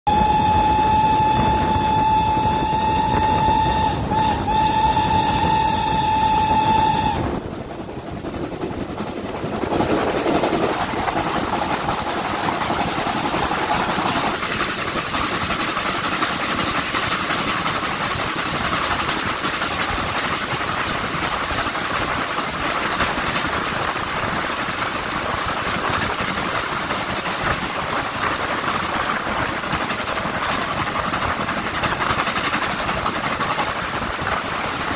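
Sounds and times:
steam locomotive whistle: 0.1s - 7.5s
train rushing noise: 0.1s - 34.9s.

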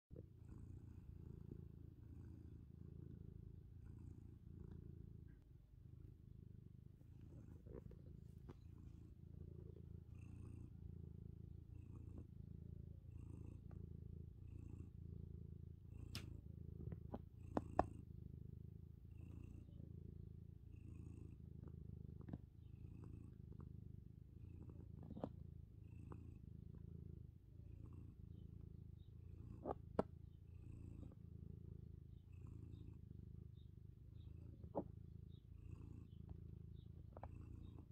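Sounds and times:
cat purring: 0.1s - 37.9s.

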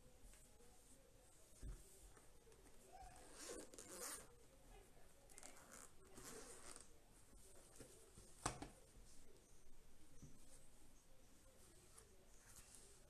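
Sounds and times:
zipper being pulled open: 3.2s - 4.3s, 5.4s - 6.9s.

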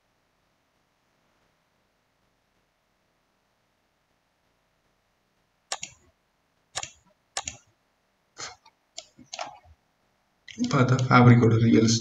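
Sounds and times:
computer mouse clicks: 5.7s - 6.1s, 6.7s - 7.7s, 8.5s - 9.7s.

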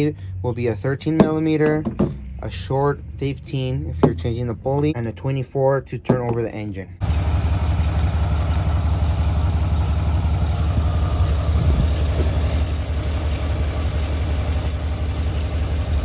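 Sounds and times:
engine idling: 7.0s - 16.0s.

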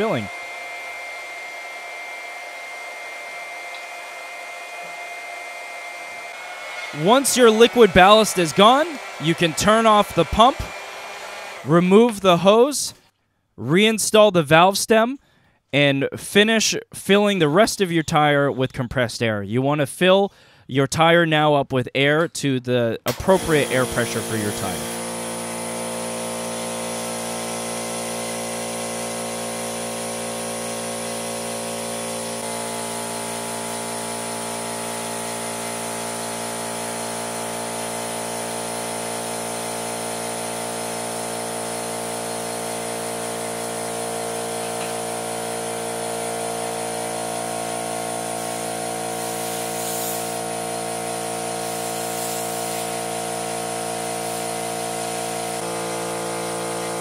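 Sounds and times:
air compressor motor running: 0.0s - 11.7s, 23.2s - 57.0s
air hissing: 48.0s - 55.6s.

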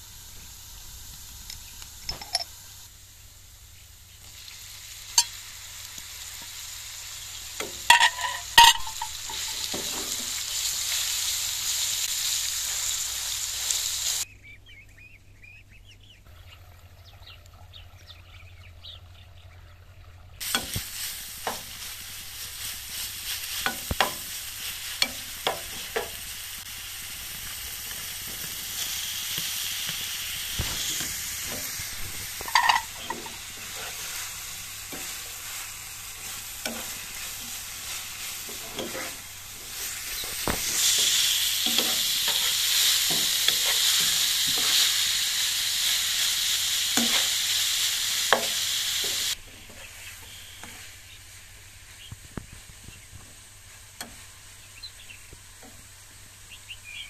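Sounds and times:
meat sizzling in a pan: 0.0s - 14.3s, 20.4s - 57.0s
metal spoon scraping a pan: 7.6s - 10.6s, 22.6s - 26.2s, 30.6s - 35.6s, 36.2s - 44.8s, 47.0s - 47.4s
faint chirping: 49.7s - 51.3s.

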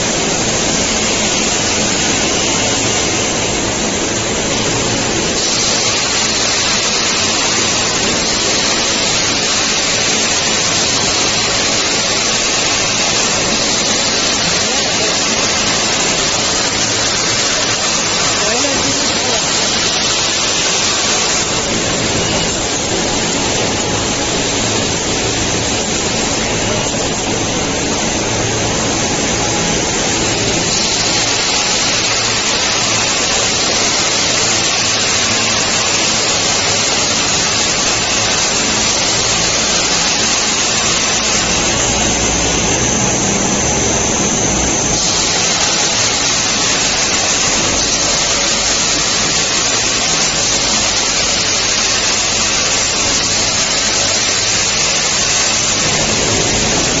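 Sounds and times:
production machinery rushing noise: 0.0s - 57.0s
low rumble: 55.7s - 57.0s.

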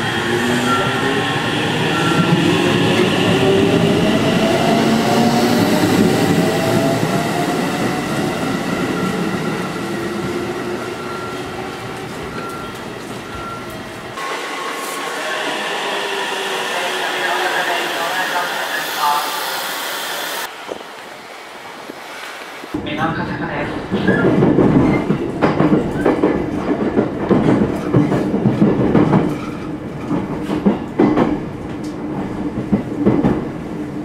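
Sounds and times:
quiet train background: 22.8s - 34.0s.

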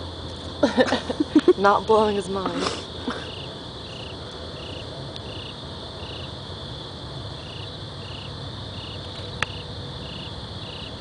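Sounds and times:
cricket chirping: 0.0s - 11.0s
low background rumble: 0.0s - 11.0s.

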